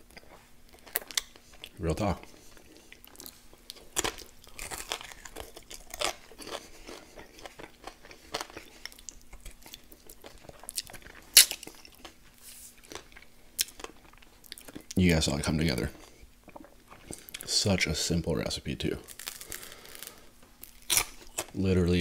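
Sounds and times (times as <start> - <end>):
chewing and crunching chicken wings: 0.0 - 15.1, 19.0 - 21.6.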